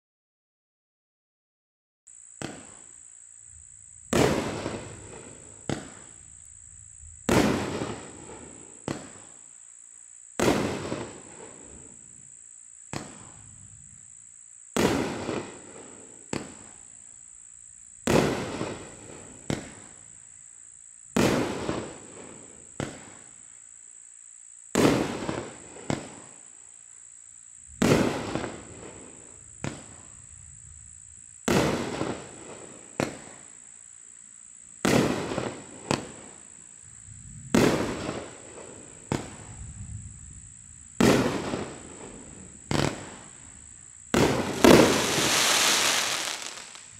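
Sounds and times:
faint firework crack: 0:04.1 - 0:06.2, 0:07.2 - 0:09.3, 0:18.0 - 0:19.9, 0:44.1 - 0:46.9
firework bangs with rumble: 0:44.1 - 0:46.8.

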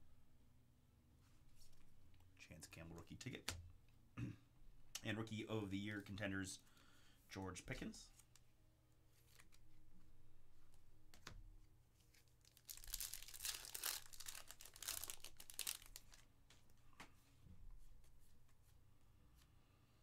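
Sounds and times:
plastic wrapper crackling: 0:12.1 - 0:16.3.

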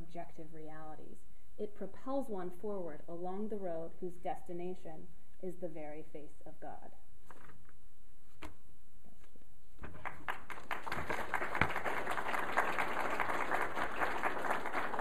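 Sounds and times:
audience applause: 0:10.0 - 0:15.0.

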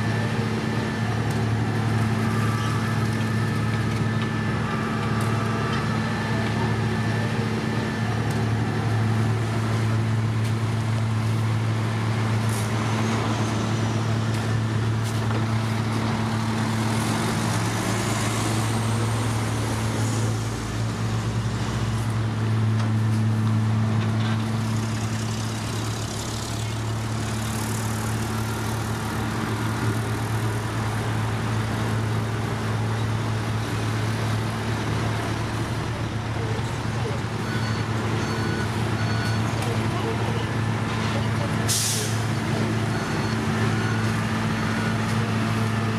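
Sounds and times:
heavy diesel engines running: 0:00.0 - 0:45.9.

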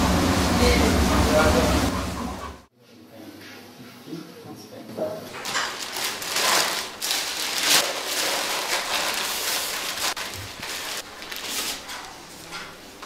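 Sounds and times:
paper rustling and crinkling: 0:05.4 - 0:12.3.

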